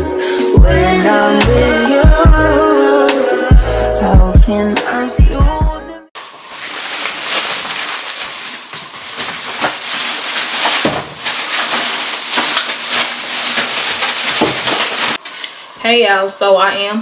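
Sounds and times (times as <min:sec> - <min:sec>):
plastic bag rustling: 0:06.2 - 0:15.5.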